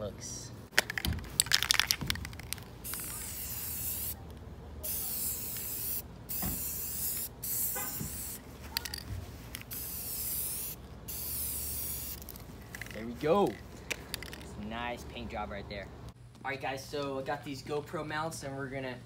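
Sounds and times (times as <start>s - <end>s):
spray can rattling: 0.7s - 4.2s, 4.8s - 14.5s
spray paint hissing: 0.8s - 4.2s, 4.8s - 13.2s.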